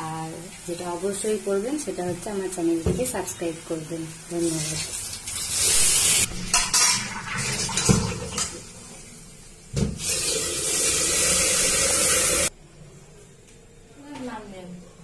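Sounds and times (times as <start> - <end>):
food sizzling in hot pan: 0.0 - 7.8
metal spatula scraping in a pan: 5.7 - 7.8.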